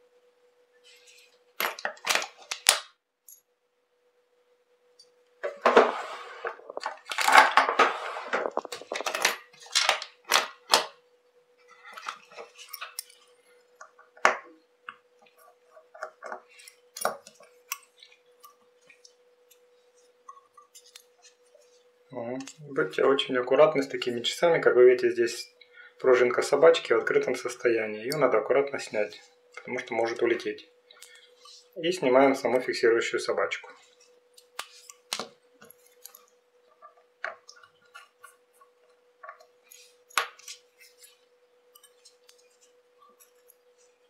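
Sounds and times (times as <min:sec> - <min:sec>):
scraping and rustling: 0:05.5 - 0:09.8.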